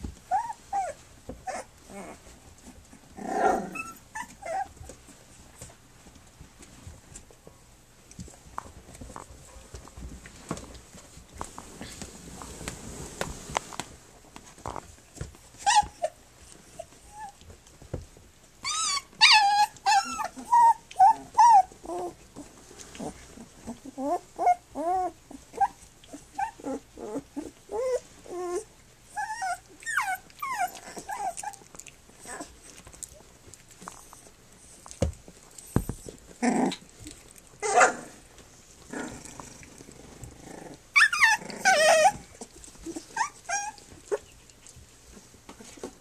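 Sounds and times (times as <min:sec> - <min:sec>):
puppies yipping and whining: 0:00.0 - 0:05.2, 0:15.4 - 0:17.5, 0:18.6 - 0:33.3, 0:33.9 - 0:38.2, 0:40.3 - 0:45.9
puppies scuffling on carpet: 0:00.0 - 0:46.0.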